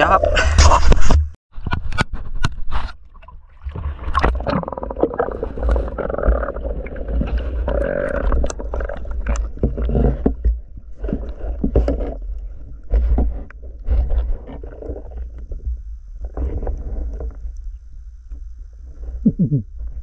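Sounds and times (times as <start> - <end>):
underwater clicks and knocks: 1.6 - 17.6
water sloshing and splashing: 2.6 - 17.6
muffled underwater rumble: 2.8 - 20.0.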